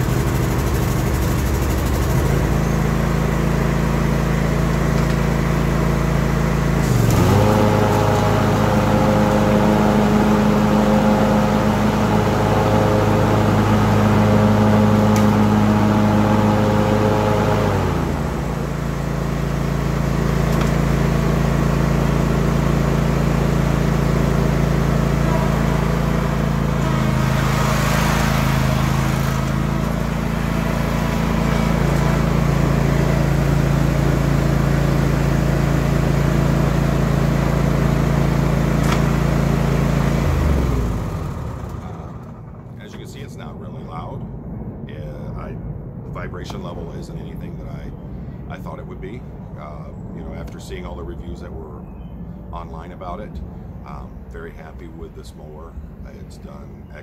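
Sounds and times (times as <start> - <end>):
mower engine running: 0.0 - 43.5.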